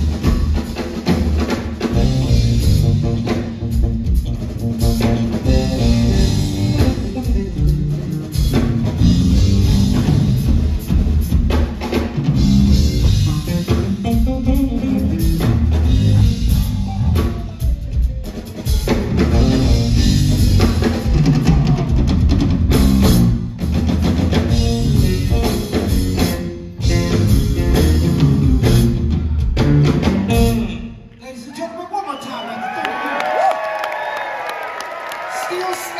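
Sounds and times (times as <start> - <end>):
drum kit with cymbals: 0.0 - 31.0
electric bass guitar: 1.8 - 11.6, 12.2 - 31.0.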